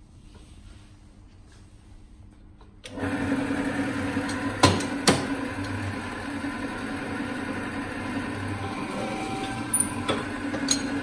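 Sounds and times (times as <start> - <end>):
paper drill motor humming: 5.5 - 11.0.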